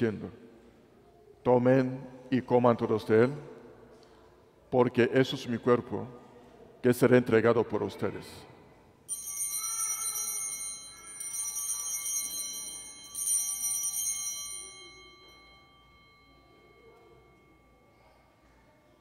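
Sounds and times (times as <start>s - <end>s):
small bells ringing: 9.1s - 19.0s.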